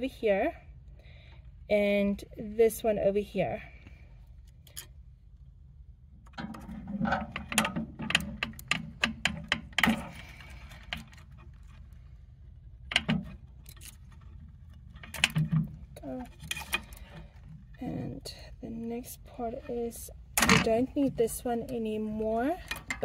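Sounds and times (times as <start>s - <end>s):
low steady hum: 0.0s - 23.0s
plastic connectors clicking and rattling: 12.9s - 17.5s, 22.4s - 23.0s.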